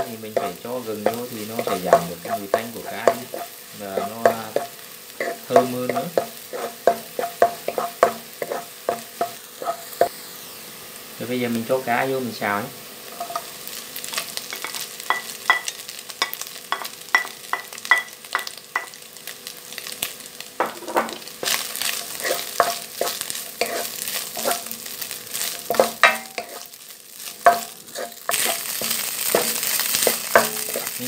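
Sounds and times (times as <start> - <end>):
wooden spatula scraping a pan: 0.0 - 9.8, 21.0 - 24.8, 25.4 - 31.0
food sizzling in oil: 0.0 - 31.0.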